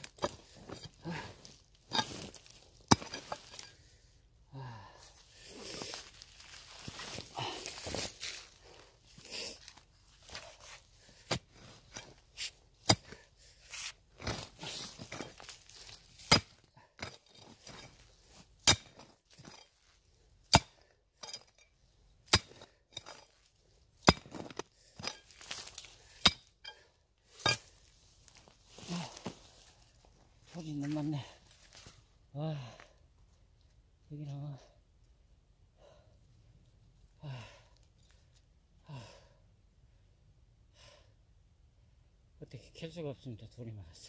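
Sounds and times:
grit and soil scraping: 0.0s - 4.0s, 5.2s - 21.6s, 22.2s - 32.0s
metal tool clinking on stones: 2.9s - 3.8s, 18.6s - 19.8s, 20.5s - 21.7s, 22.3s - 23.3s, 24.0s - 25.4s.

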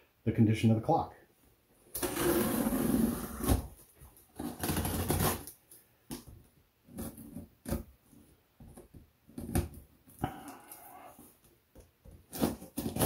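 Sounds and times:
scissors slitting packing tape: 4.4s - 5.6s, 12.3s - 13.0s.

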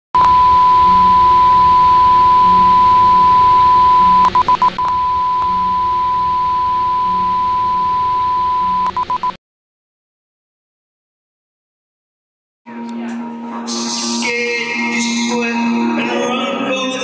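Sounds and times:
steady test tone: 0.2s - 9.3s.

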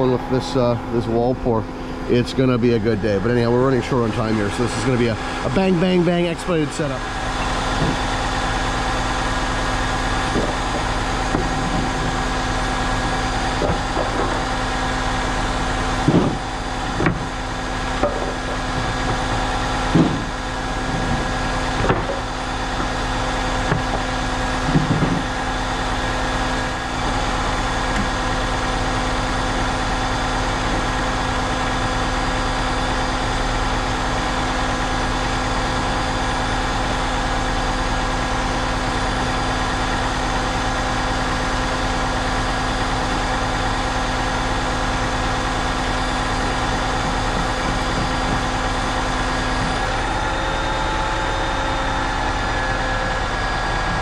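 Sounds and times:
diesel engine running steadily: 0.0s - 54.0s
short knocks: 19.9s - 20.3s.

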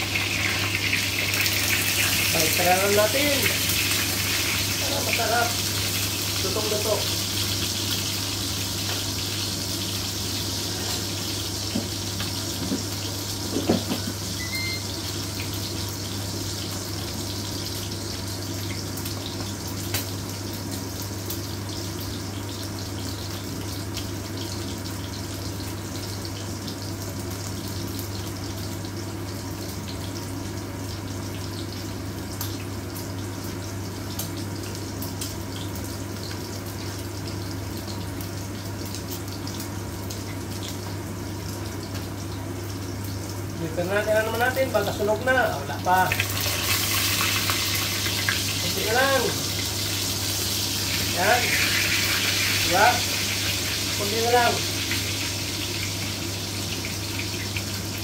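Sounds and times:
meat sizzling in hot oil: 0.0s - 58.0s.

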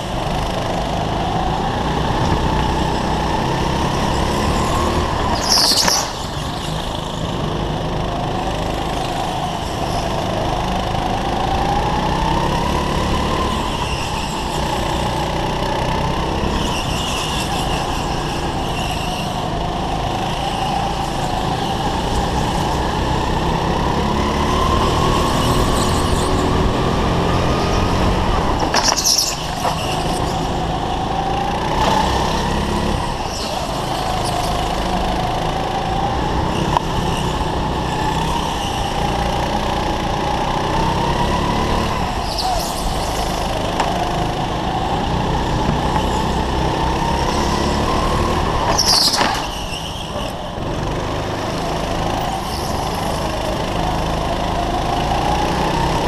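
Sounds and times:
go-kart engine running hard: 0.0s - 56.0s.

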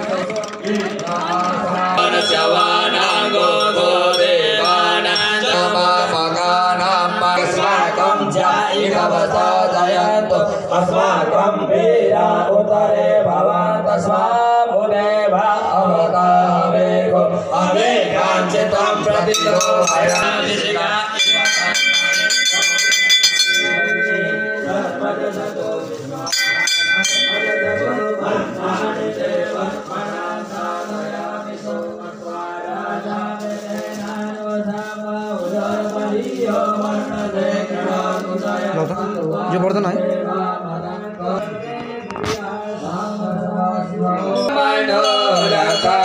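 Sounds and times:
temple bell ringing rapidly: 0.0s - 9.8s, 18.4s - 31.4s, 44.2s - 46.0s
voices chanting in unison: 0.0s - 46.0s.

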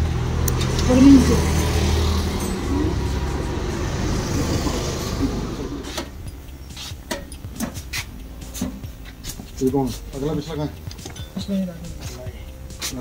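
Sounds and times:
motor vehicle running: 0.0s - 12.8s
sharp clicks: 0.4s - 0.9s.

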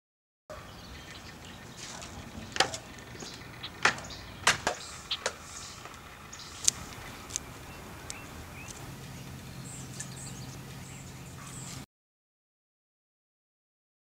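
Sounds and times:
faint outdoor hiss: 0.6s - 11.8s
sandal footsteps on wooden decking: 1.6s - 9.2s.

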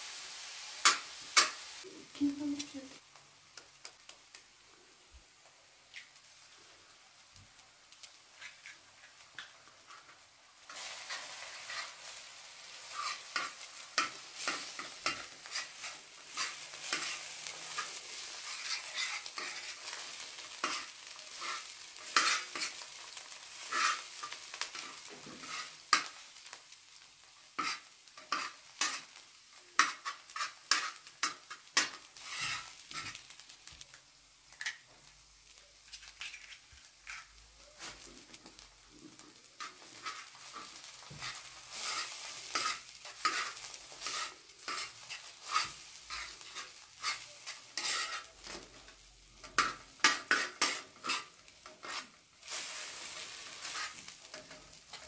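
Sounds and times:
eggs sizzling in a pan: 0.0s - 55.0s
metal spoon scraping a pan: 8.3s - 26.2s, 27.6s - 29.2s, 29.8s - 33.3s, 35.8s - 55.0s.

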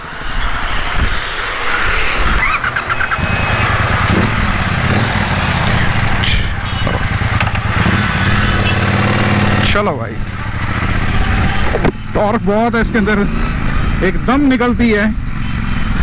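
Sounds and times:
motorcycle engine running: 2.4s - 12.6s.

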